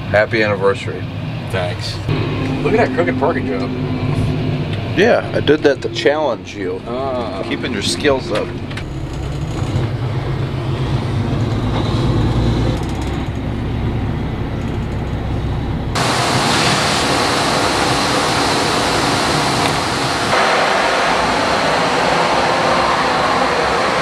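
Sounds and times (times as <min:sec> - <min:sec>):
loud steady rushing noise: 0:00.0 - 0:14.1, 0:15.7 - 0:24.0
vehicle engine rumble: 0:00.0 - 0:24.0.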